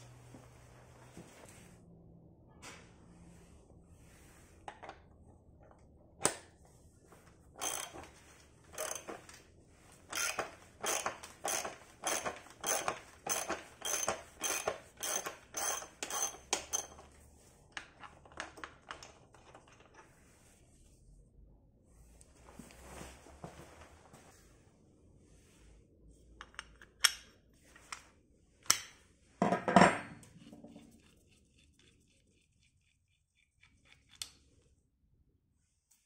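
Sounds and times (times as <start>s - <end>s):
ratchet wrench ticking: 7.6s - 8.0s, 8.8s - 9.1s, 10.1s - 16.9s.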